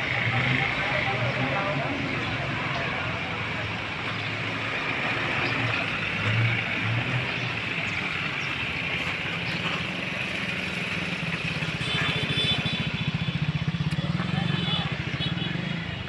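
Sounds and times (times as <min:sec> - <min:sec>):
vehicle engine hum: 0:00.0 - 0:16.0
sparrows chirping: 0:04.1 - 0:12.6.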